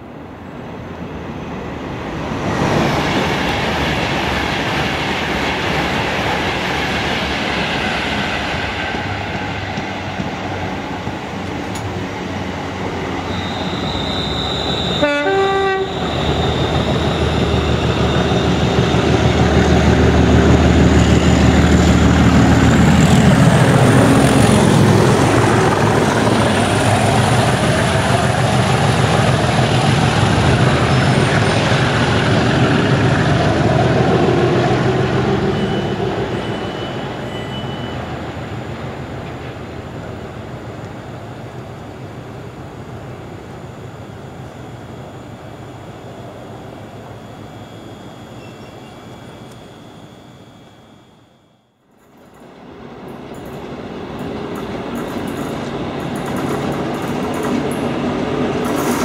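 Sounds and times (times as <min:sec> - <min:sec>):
diesel locomotive engine rumble: 0:00.0 - 0:51.1
train rail noise: 0:00.0 - 0:59.0
horn-like tone: 0:13.2 - 0:18.8.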